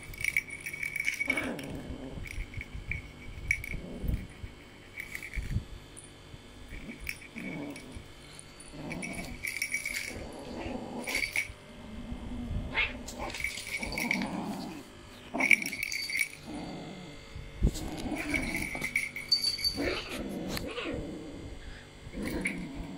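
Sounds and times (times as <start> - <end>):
small bell jingling: 0.0 - 11.6, 13.1 - 16.7, 17.8 - 20.2, 22.2 - 22.8
kitten growling: 1.2 - 2.4, 6.7 - 15.8, 16.4 - 19.0, 19.6 - 22.9.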